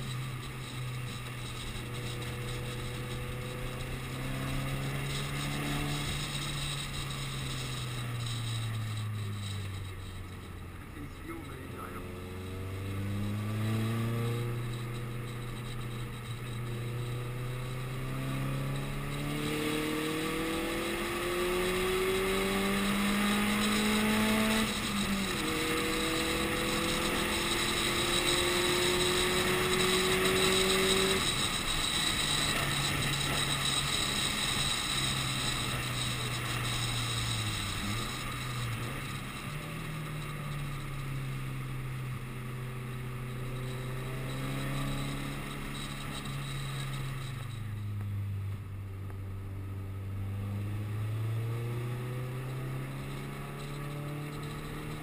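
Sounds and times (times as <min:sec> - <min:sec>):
car engine pulling hard: 0:00.0 - 0:55.0
road noise: 0:00.0 - 0:55.0.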